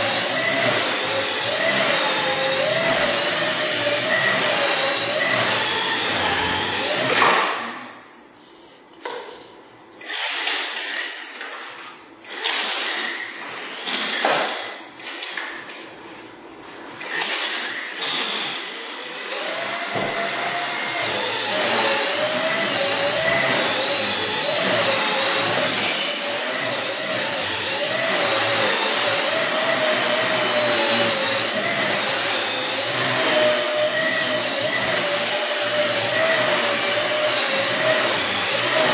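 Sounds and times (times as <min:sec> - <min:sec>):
toy helicopter rotors whining: 0:17.0 - 0:38.9.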